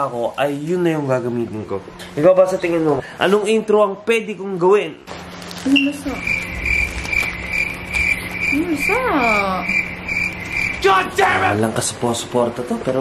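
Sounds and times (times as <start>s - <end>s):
low hum: 5.0s - 12.5s
cricket chirping: 5.7s - 11.5s.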